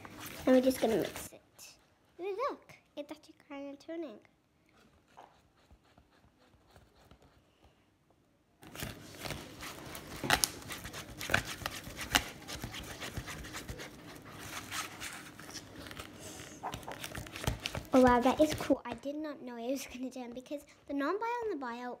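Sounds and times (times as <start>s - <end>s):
sticky slime stirring: 8.7s - 19.1s.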